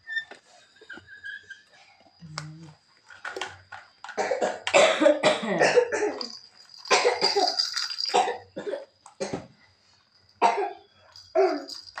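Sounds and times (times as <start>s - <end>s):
person coughing: 4.2s - 6.3s, 6.9s - 9.4s.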